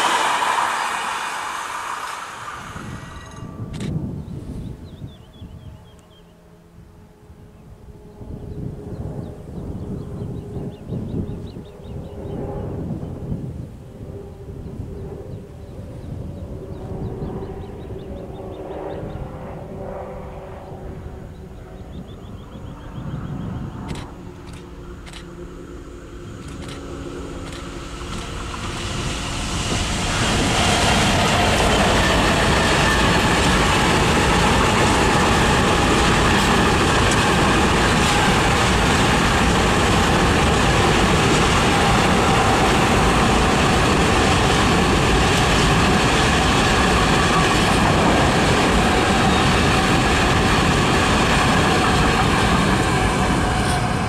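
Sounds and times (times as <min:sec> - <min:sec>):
train wheels on rails: 0:00.0 - 0:04.8, 0:23.8 - 0:54.0
locomotive hum: 0:00.0 - 0:54.0.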